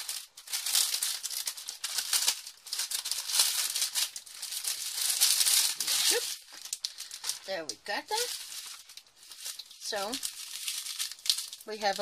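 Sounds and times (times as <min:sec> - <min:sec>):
plastic packaging crinkling: 0:00.0 - 0:12.0
small beads rattling in bags: 0:00.0 - 0:12.0.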